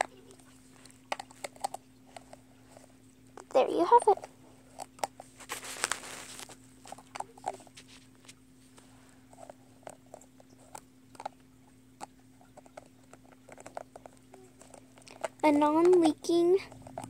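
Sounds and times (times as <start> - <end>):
plastic bottle rustling: 5.3 - 8.9.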